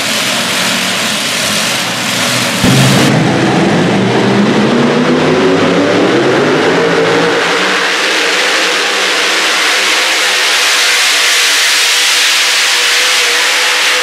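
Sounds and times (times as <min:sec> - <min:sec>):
truck engine at high revs: 0:00.0 - 0:14.0.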